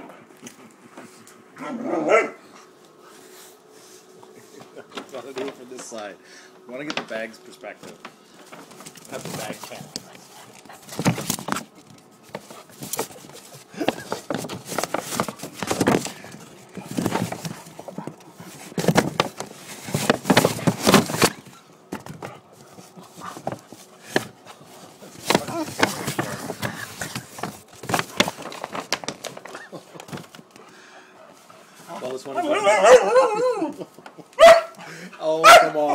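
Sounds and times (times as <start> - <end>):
puppy scuffling against microphone: 7.1 - 30.6.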